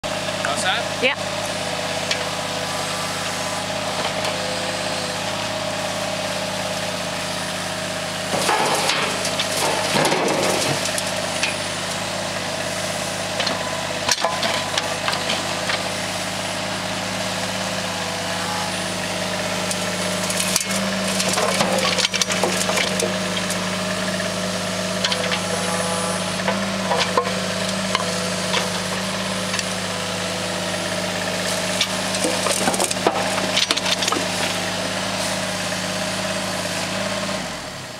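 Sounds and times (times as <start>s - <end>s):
engines humming: 0.0s - 37.9s.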